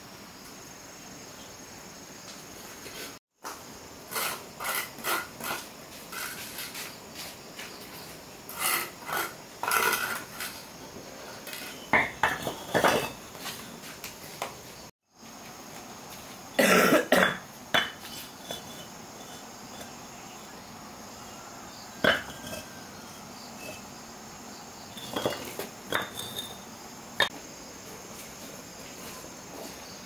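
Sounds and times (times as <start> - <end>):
metal tool scraping and knocking: 8.5 - 10.6, 11.3 - 13.4, 17.3 - 20.0, 22.0 - 23.9, 24.9 - 26.6.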